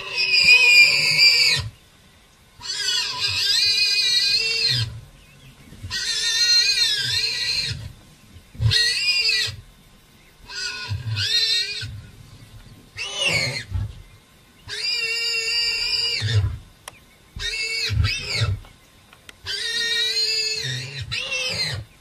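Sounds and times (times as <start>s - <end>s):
warthog squealing: 13.0s - 13.8s, 17.4s - 18.6s, 19.5s - 21.9s.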